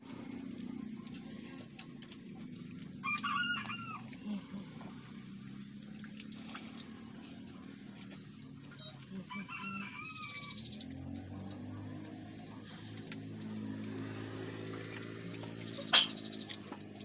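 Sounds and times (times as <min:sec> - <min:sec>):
low steady hum: 0:00.0 - 0:17.0
rooster crowing: 0:03.0 - 0:04.2, 0:09.1 - 0:10.7.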